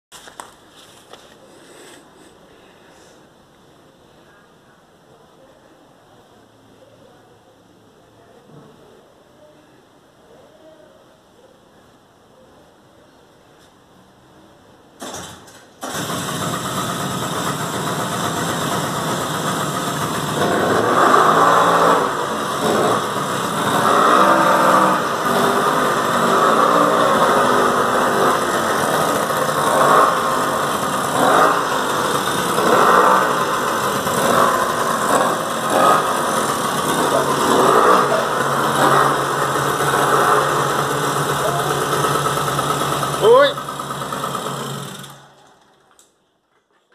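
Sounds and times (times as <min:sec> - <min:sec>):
small atv engine starting and revving: 0:15.0 - 0:46.2.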